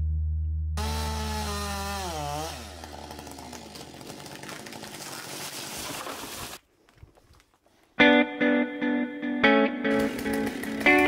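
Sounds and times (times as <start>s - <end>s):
chainsaw coming off throttle: 0.8s - 6.6s, 9.9s - 11.0s.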